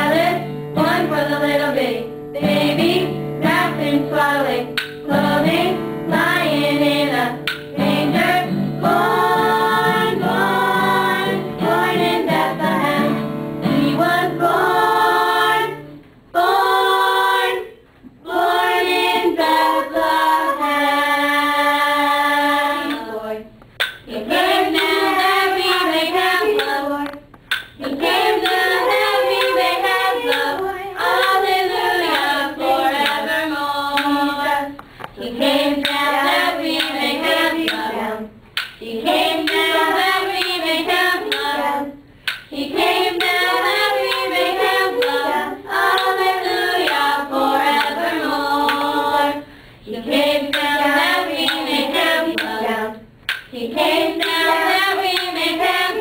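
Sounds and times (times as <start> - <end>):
girls singing unaccompanied: 0.0 - 56.0.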